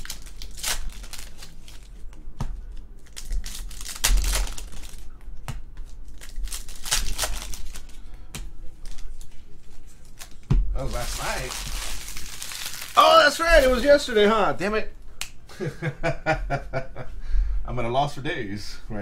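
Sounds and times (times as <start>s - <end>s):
foil wrappers crinkling: 0.0s - 2.1s, 3.0s - 5.2s, 6.0s - 8.1s, 8.8s - 14.3s.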